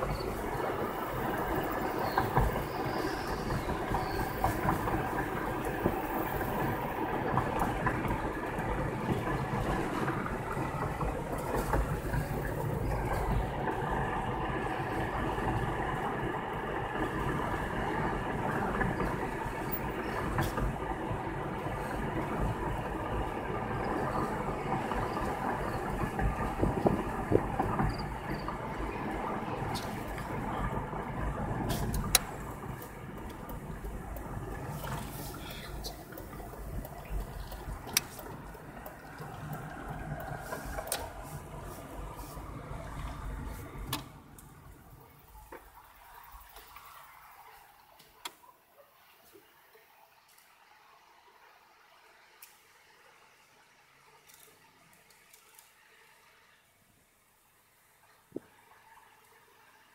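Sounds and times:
tyres on road: 0:00.0 - 0:59.9.

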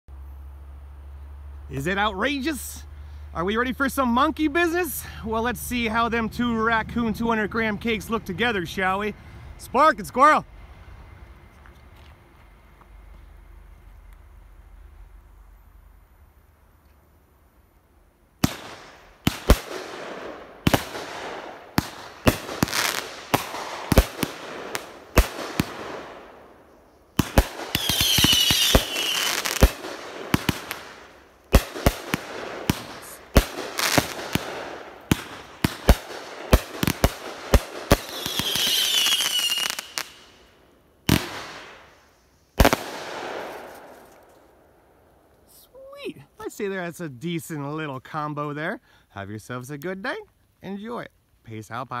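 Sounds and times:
firework whistles: 0:18.4 - 0:43.9
fireworks bangs and crackle: 0:18.4 - 0:44.4.

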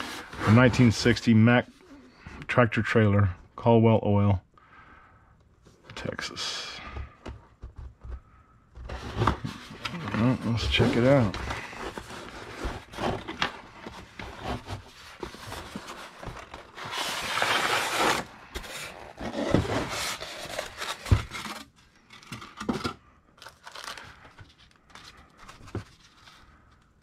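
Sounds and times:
cardboard and paper rustling: 0:08.8 - 0:27.0.

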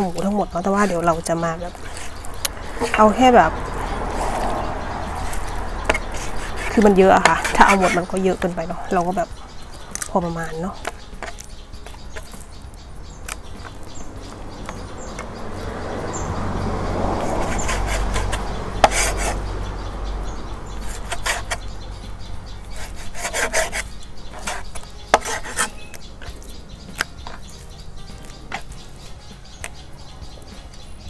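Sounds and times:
knife sawing through meat: 0:03.8 - 0:08.2, 0:17.2 - 0:19.5, 0:20.8 - 0:21.6, 0:22.7 - 0:26.0.

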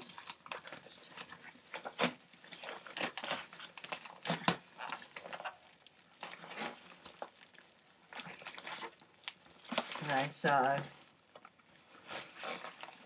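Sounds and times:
paper tearing and crumpling: 0:00.0 - 0:05.6, 0:11.9 - 0:13.0.

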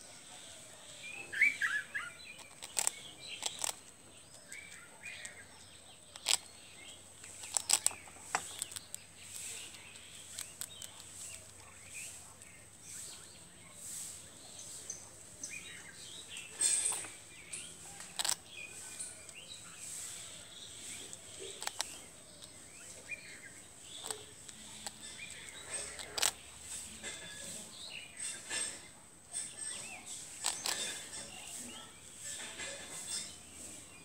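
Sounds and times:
small birds chirping: 0:00.0 - 0:34.0
sharp crunches or clicks: 0:02.2 - 0:05.4, 0:06.1 - 0:11.4, 0:21.1 - 0:23.2, 0:23.8 - 0:27.2, 0:29.6 - 0:31.3.

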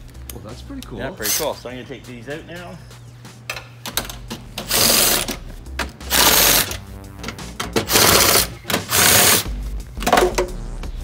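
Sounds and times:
power tool spinning bolts: 0:04.6 - 0:05.4, 0:06.1 - 0:06.8, 0:07.8 - 0:09.4.

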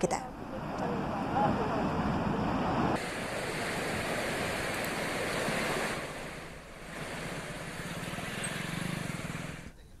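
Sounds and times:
wind buffeting microphone: 0:00.2 - 0:08.2
floodwater rushing: 0:00.4 - 0:09.6
faint motorcycle engine: 0:07.0 - 0:10.0.

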